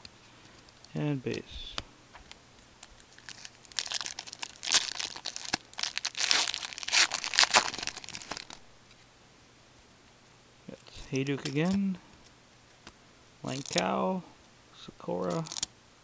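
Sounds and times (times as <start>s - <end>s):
plastic wrapper crinkling and tearing: 2.8s - 8.6s, 13.5s - 13.9s, 15.2s - 15.7s.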